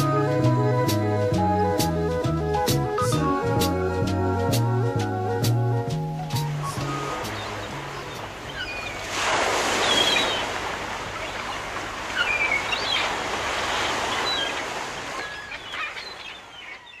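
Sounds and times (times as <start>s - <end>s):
song music: 0.0s - 8.4s
surf washing on shore: 6.2s - 16.5s
bird calls chirping: 6.7s - 9.1s, 9.8s - 10.6s, 11.2s - 17.0s.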